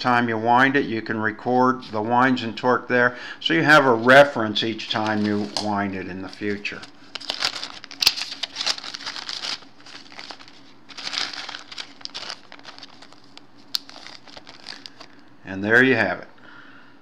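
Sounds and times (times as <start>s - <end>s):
plastic bag crinkling: 4.9s - 15.2s.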